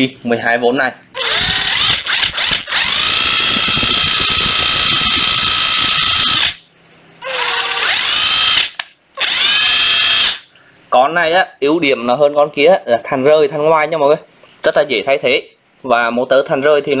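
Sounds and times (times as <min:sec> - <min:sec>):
impact driver motor whine: 0:01.2 - 0:06.6, 0:07.2 - 0:10.4.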